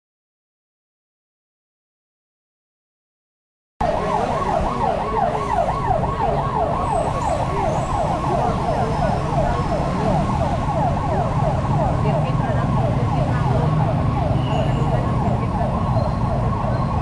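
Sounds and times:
electronic siren yelping: 3.8 - 17.0.

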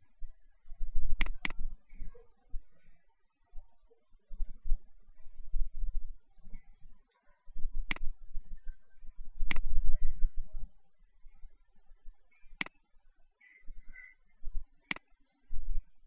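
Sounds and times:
computer mouse clicks: 1.2 - 1.6, 7.8 - 8.1, 9.4 - 9.7.

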